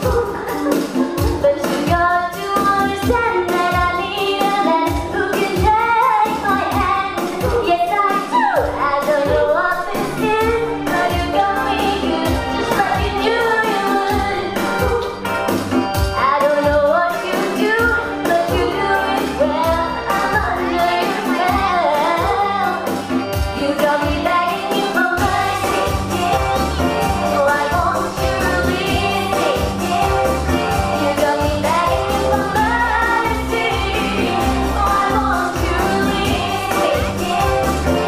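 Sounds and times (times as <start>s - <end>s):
pop backing music with steady beat: 0.0s - 38.0s
girl singing into a microphone: 1.4s - 15.0s, 16.2s - 22.9s, 23.5s - 26.6s, 31.0s - 37.6s.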